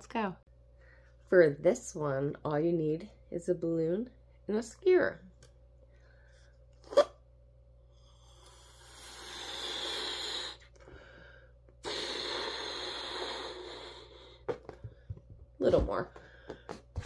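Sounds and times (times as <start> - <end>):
breath blowing up balloon: 6.8 - 7.2, 7.9 - 14.6.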